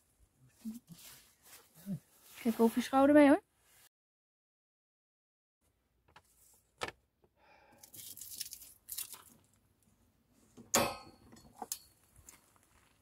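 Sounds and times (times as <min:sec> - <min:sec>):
ringing metal clank: 0:10.8 - 0:11.8.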